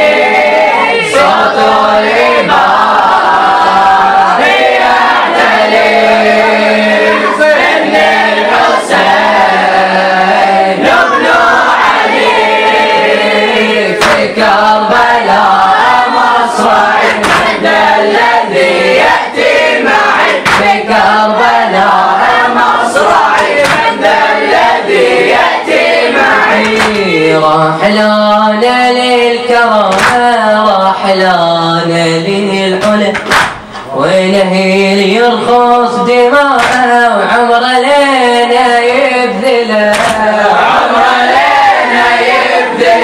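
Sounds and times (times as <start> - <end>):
boys chanting together: 0.0 - 43.0
hands slapping chests: 14.0 - 14.3, 17.0 - 17.6, 20.4 - 20.8, 23.3 - 24.0, 26.6 - 27.1, 29.9 - 30.3, 32.8 - 33.9, 36.6 - 36.9, 39.9 - 40.3.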